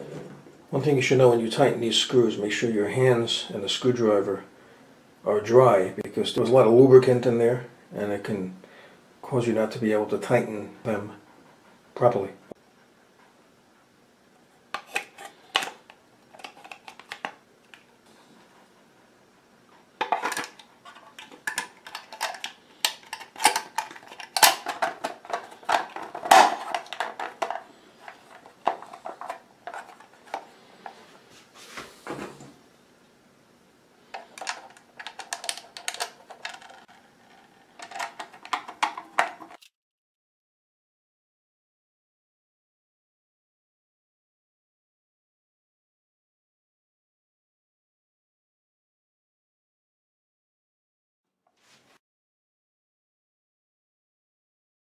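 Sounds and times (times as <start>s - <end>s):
plastic parts clicking and clattering: 14.8s - 17.9s, 20.0s - 31.0s, 34.1s - 39.7s.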